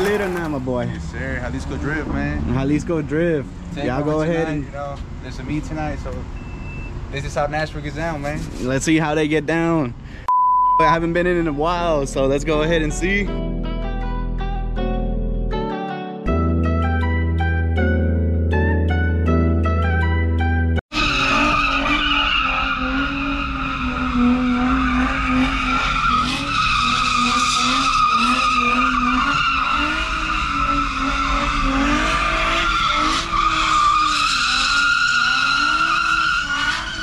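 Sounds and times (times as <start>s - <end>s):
car engine revving: 0.0s - 6.4s, 20.9s - 37.0s
tires squealing: 0.0s - 9.1s, 20.9s - 37.0s.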